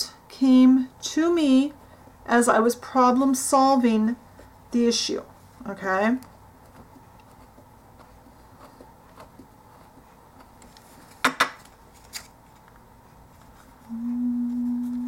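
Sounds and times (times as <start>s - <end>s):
steady low hum: 11.8s - 15.0s.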